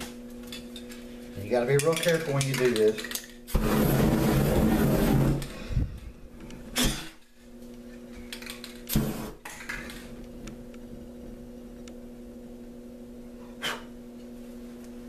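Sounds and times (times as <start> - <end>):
steady low hum: 0.0 - 15.0
rushing bursts of flame: 3.5 - 6.1, 8.9 - 9.4.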